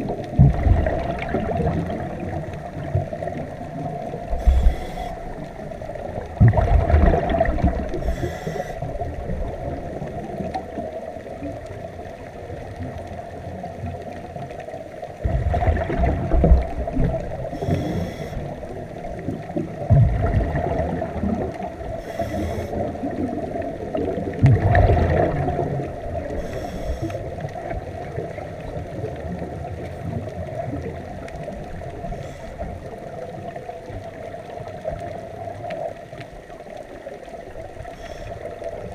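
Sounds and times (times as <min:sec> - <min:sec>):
underwater hum: 0:00.0 - 0:38.9
hissing inhalations: 0:04.4 - 0:05.3, 0:08.0 - 0:08.9, 0:17.6 - 0:18.5, 0:22.0 - 0:22.8, 0:26.4 - 0:27.2.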